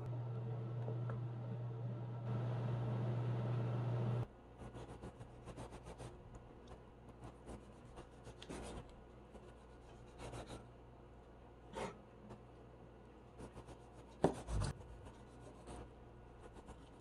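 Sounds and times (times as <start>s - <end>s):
oven humming: 0.0s - 4.3s.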